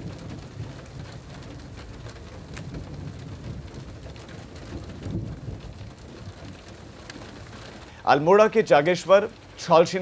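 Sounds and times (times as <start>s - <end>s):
hail and rain pattering: 0.0s - 10.0s.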